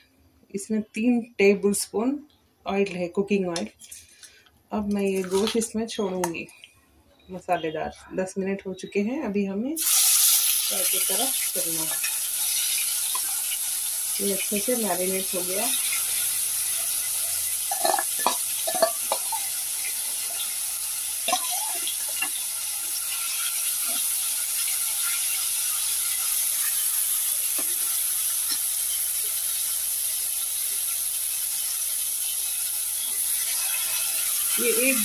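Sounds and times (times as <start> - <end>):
meat sizzling in oil: 9.8 - 35.0
steel spoon clinking against pan: 17.2 - 19.6, 21.3 - 22.4.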